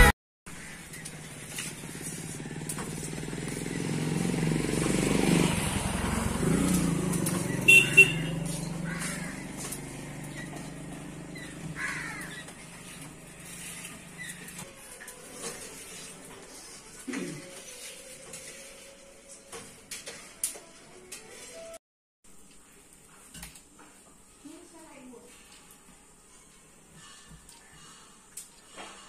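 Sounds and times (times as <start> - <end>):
motorcycle engine passing: 0.0 - 17.0.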